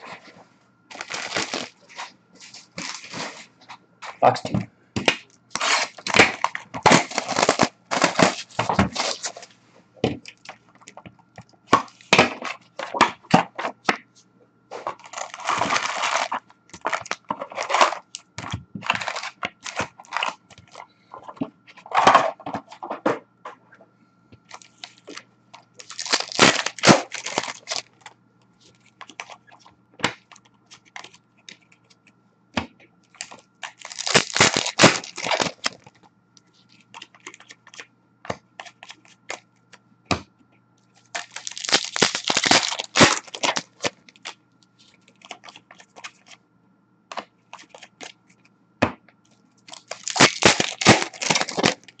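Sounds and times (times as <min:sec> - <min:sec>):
cardboard tearing and flexing: 0:00.9 - 0:03.5, 0:05.5 - 0:09.5, 0:14.8 - 0:18.0, 0:25.8 - 0:27.9, 0:33.6 - 0:35.8, 0:41.2 - 0:44.0, 0:49.7 - 0:52.0
foil packs crinkling: 0:00.9 - 0:03.5, 0:05.5 - 0:09.5, 0:14.8 - 0:20.9, 0:24.5 - 0:28.1, 0:33.1 - 0:36.0, 0:41.1 - 0:44.4, 0:49.7 - 0:52.0.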